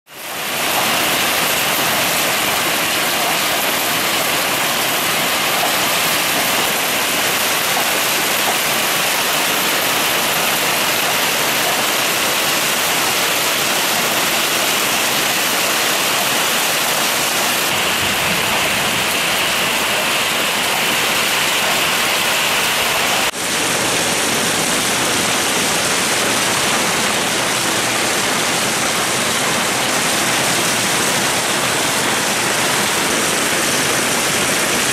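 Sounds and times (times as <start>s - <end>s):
rain and hail on car roof: 0.2s - 34.9s.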